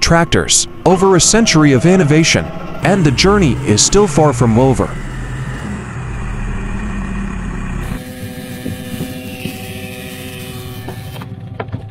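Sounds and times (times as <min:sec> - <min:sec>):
tractor engine rumbling: 0:00.0 - 0:09.0
engine humming: 0:00.0 - 0:11.6.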